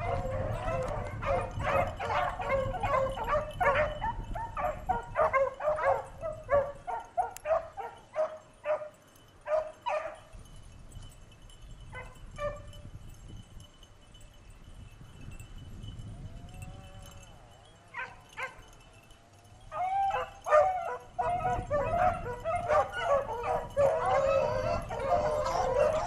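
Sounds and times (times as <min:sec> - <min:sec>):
beagles baying: 0:00.0 - 0:10.2, 0:17.8 - 0:26.0.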